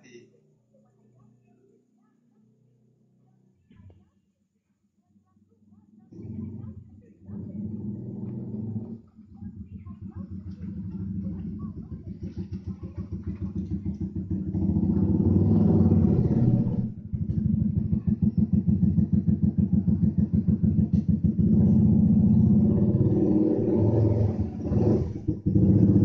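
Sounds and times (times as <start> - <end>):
small engine running: 6.1 - 26.0.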